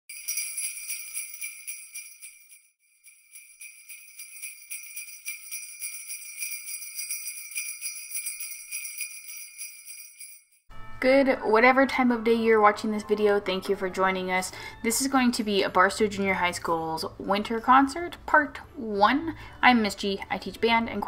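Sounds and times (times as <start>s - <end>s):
jingle bells shaken: 0.1s - 10.6s.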